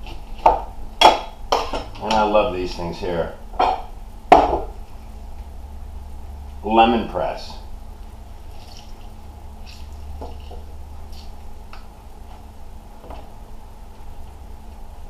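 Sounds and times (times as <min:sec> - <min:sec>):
low steady hum: 0:00.0 - 0:15.0
juice dripping: 0:07.9 - 0:12.4
fruit squishing: 0:08.1 - 0:12.4.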